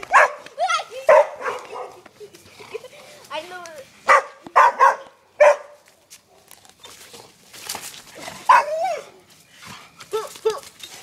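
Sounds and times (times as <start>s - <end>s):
dog yelping bark: 0.1s - 2.0s, 4.1s - 5.8s, 8.5s - 9.1s
dogs barking: 0.1s - 2.1s, 4.1s - 5.8s, 8.4s - 9.1s.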